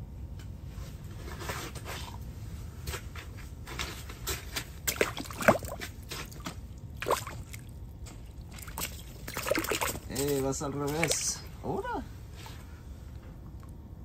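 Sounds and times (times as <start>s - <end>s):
water splashing and sloshing: 2.8s - 12.6s.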